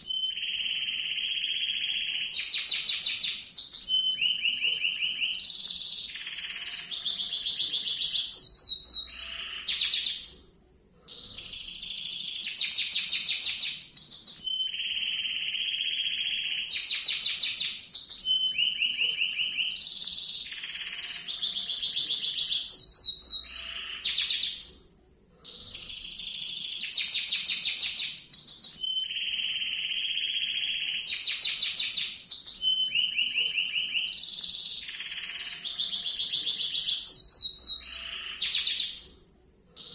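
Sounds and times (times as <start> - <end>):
canary singing trills: 0.0 - 10.3, 11.1 - 24.7, 25.4 - 39.1.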